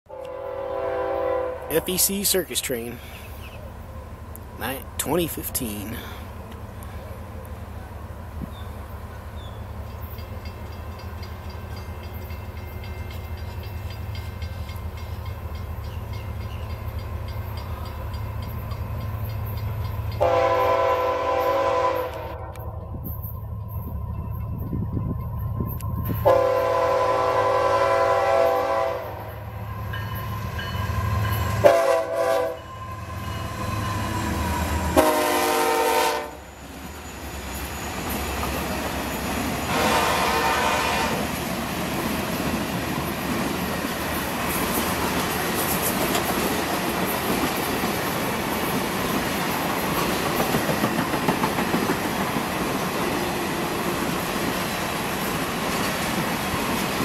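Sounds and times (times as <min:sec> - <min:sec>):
locomotive air horn blasts: 0:00.1 - 0:01.8, 0:20.2 - 0:22.5, 0:26.2 - 0:29.4, 0:31.6 - 0:32.7, 0:34.9 - 0:36.5, 0:39.7 - 0:41.3
diesel locomotive rumble: 0:00.5 - 0:57.0
train wheels clattering on rails: 0:08.4 - 0:20.9, 0:41.2 - 0:57.0.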